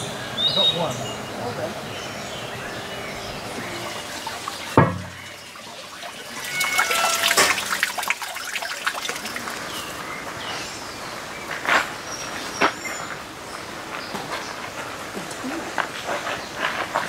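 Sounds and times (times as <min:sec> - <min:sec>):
water trickling and dripping: 0:02.8 - 0:10.6.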